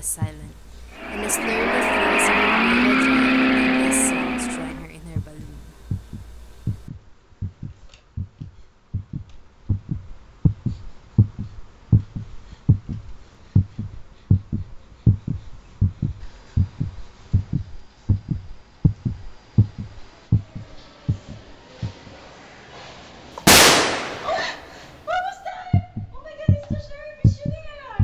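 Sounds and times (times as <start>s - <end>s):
heartbeat double thump: 5.9s - 13.0s, 25.8s - 27.6s.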